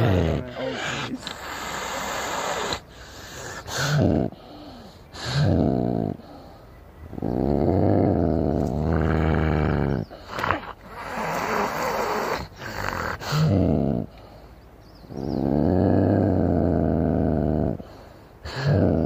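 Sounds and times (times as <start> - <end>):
moose moaning: 0.0 - 14.4
rough hissing scraping noise: 0.4 - 3.7.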